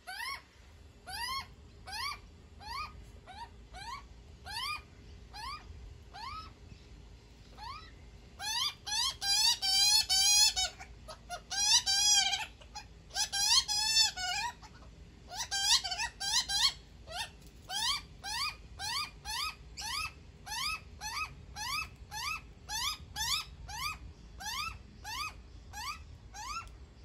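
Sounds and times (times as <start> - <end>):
young magpie begging calls: 0.1 - 0.4, 1.1 - 6.5, 7.6 - 26.7.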